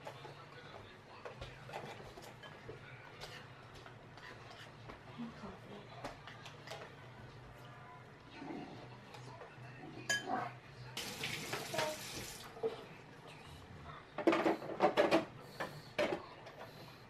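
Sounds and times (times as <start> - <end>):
dishes clattering: 10.0 - 10.4, 14.2 - 16.2.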